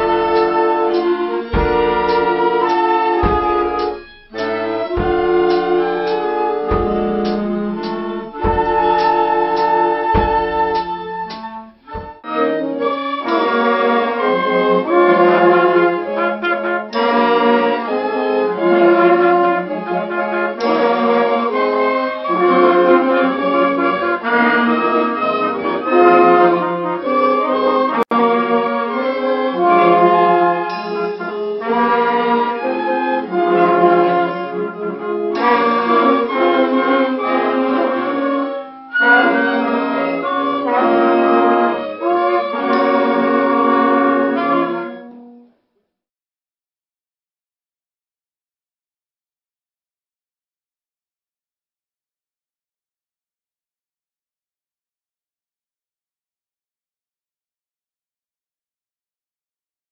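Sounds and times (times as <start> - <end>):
wind band playing: 0.0 - 45.4.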